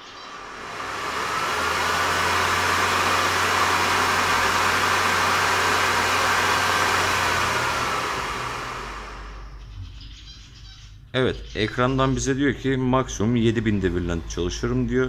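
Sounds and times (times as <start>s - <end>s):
boiler fan whining rush of air: 0.0s - 9.7s.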